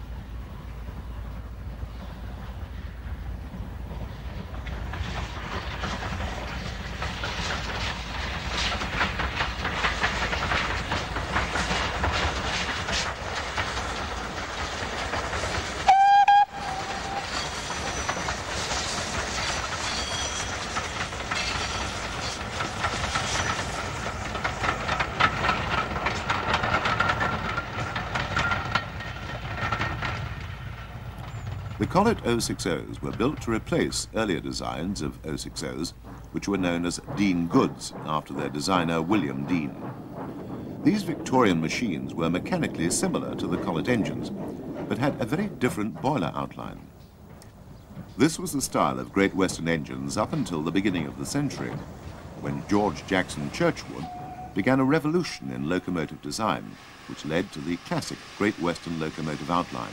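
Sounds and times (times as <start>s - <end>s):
steam locomotive exhaust beats: 0.0s - 59.9s
train wheels on rails: 0.0s - 59.9s
steam whistle blast: 15.9s - 17.2s.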